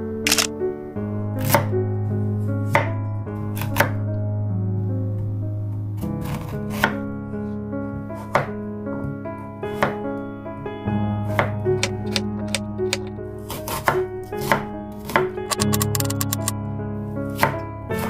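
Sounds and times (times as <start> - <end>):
background music: 0.0 - 18.0
camera shutter click: 0.3 - 0.5, 15.5 - 16.5.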